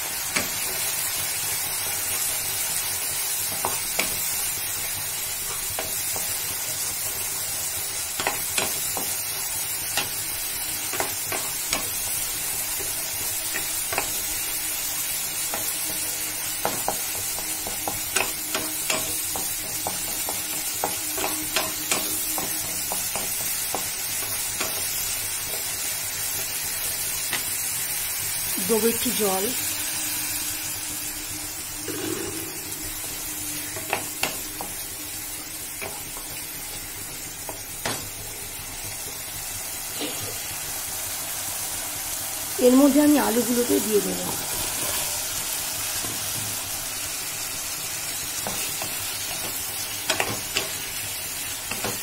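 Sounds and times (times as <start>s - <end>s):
masala sizzling in oil: 0.0s - 52.0s.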